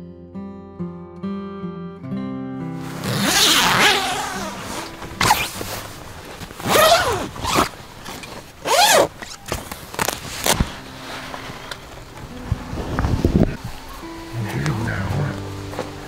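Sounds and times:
tent zipper being pulled open: 0:02.8 - 0:11.8.

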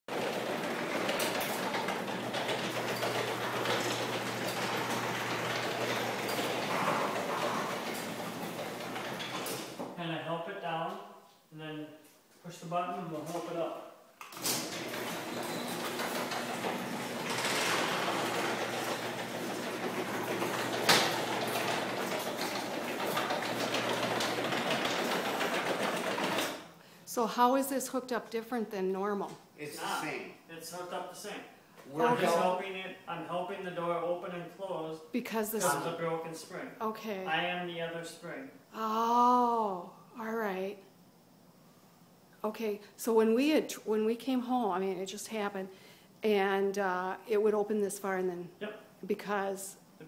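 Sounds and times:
garage door rollers rattling: 0:00.0 - 0:10.0, 0:14.4 - 0:26.7.

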